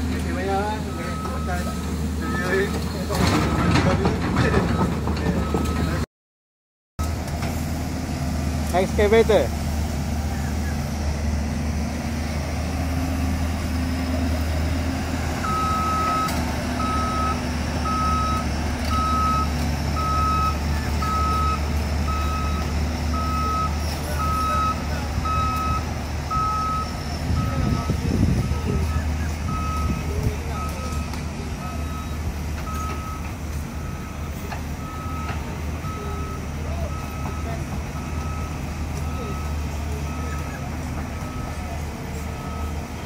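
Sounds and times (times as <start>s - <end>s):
diesel engine running: 0.0s - 6.0s, 7.0s - 43.0s
reversing alarm beeping: 0.6s - 2.8s, 15.4s - 41.7s, 42.3s - 42.9s.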